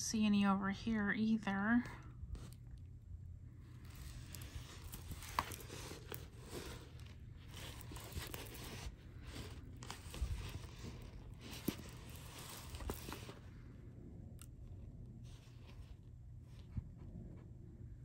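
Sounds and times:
canvas and plastic film crinkling: 3.6 - 13.6.

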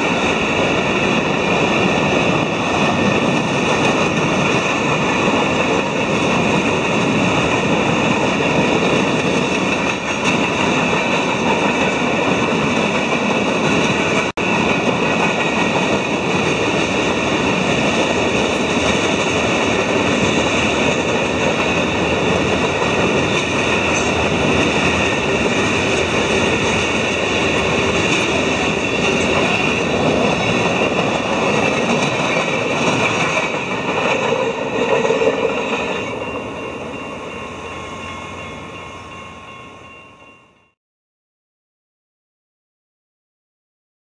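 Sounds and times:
freight train wheels rumbling: 0.0 - 40.8
high ringing tones: 35.6 - 40.8.

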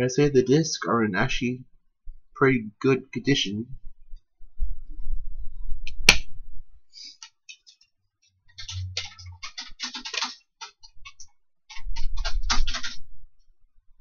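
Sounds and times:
plastic clicks and crackles: 8.6 - 13.0.

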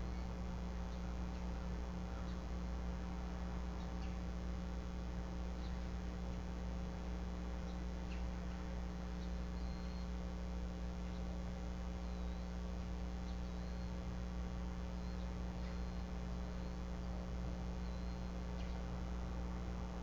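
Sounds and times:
electrical hum and hiss: 0.0 - 20.0
faint high chirps: 9.2 - 10.2, 12.0 - 12.6, 13.2 - 14.0, 15.0 - 17.2, 17.8 - 18.9.

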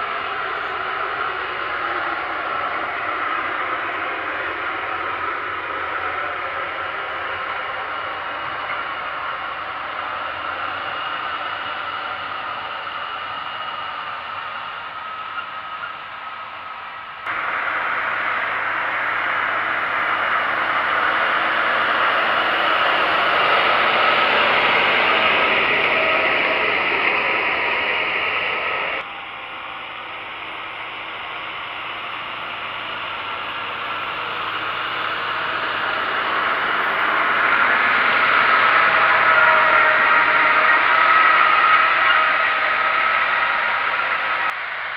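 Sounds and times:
tractor diesel engine drone: 0.0 - 44.9.

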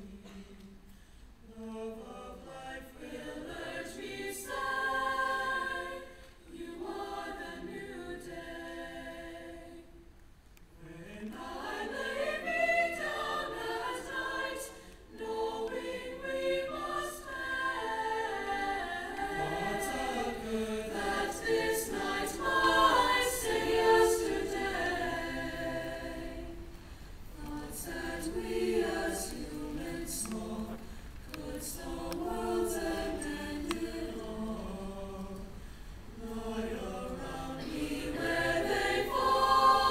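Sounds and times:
choir singing in harmony: 0.0 - 39.9.

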